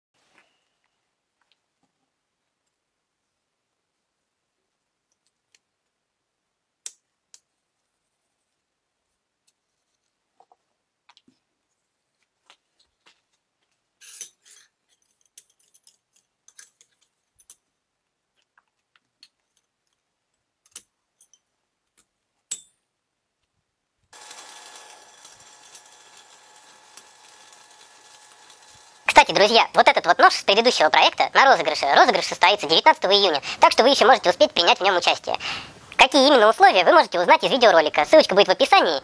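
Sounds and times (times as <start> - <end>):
electric welder crackling: 24.1 - 33.8.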